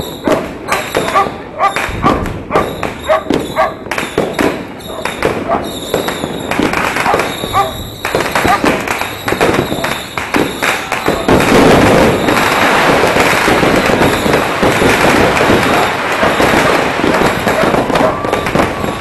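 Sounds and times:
firecrackers popping and crackling: 0:00.0 - 0:19.0.

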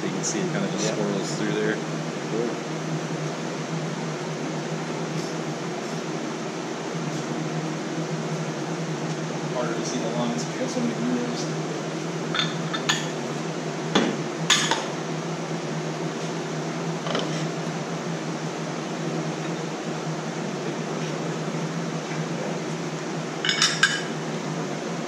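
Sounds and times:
steady background hum: 0:00.0 - 0:25.0.

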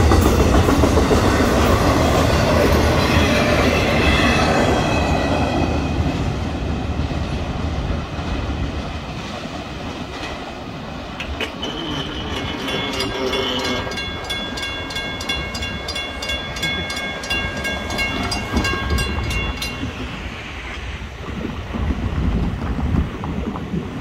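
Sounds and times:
low train rumble: 0:00.0 - 0:24.0
railroad crossing bell ringing: 0:11.2 - 0:20.4.

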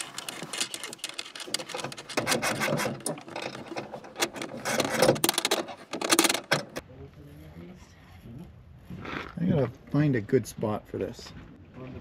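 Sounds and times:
hands rubbing and scraping cable: 0:00.0 - 0:06.8
small irregular clicks: 0:00.0 - 0:06.8.

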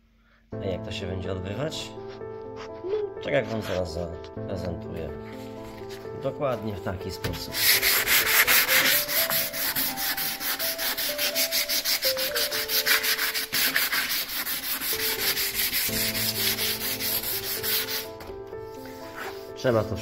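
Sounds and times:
hand sanding wood: 0:07.4 - 0:18.2, 0:18.8 - 0:19.6.

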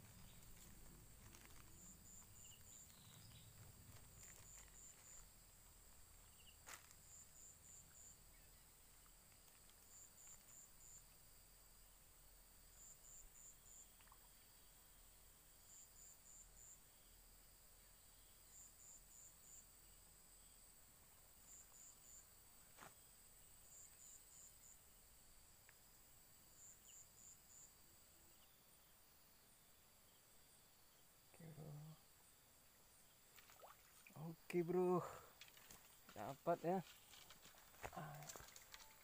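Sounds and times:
quick insect chirps: 0:00.0 - 0:11.5, 0:21.4 - 0:39.0
insect drone: 0:00.0 - 0:39.0.

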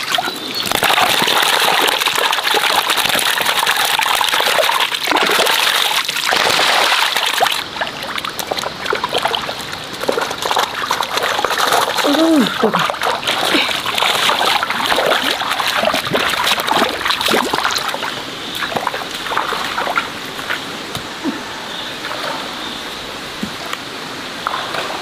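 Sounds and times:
feet splashing through water: 0:00.0 - 0:21.4
faint steady hiss: 0:17.7 - 0:25.0.

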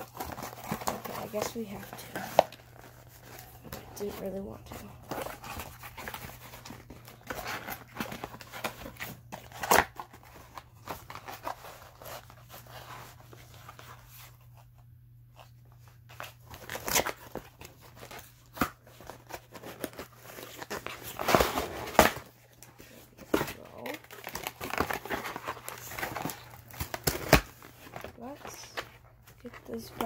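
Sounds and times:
packaging being torn open: 0:23.2 - 0:28.6.

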